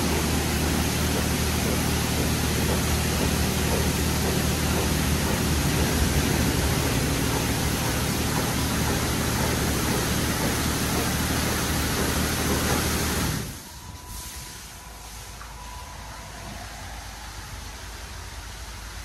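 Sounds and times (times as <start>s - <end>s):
low pump hum: 0.0s - 14.2s
high-pressure water spray hiss: 0.0s - 15.2s.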